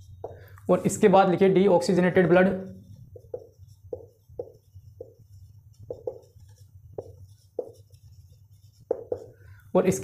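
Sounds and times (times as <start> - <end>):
faint room hum: 0.0 - 10.0
marker squeaking on whiteboard: 2.2 - 10.0.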